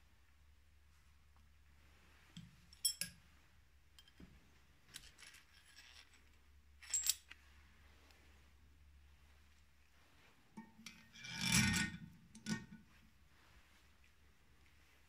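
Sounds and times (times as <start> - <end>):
metal clinks: 2.7 - 3.2, 6.8 - 7.3
faint metal scraping: 9.1 - 15.0.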